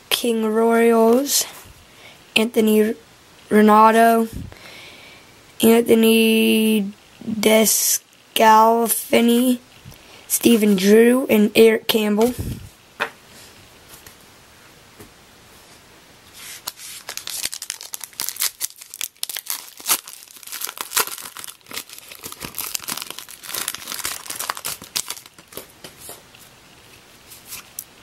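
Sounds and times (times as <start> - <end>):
wrapper tearing and crinkling: 16.6 - 25.7.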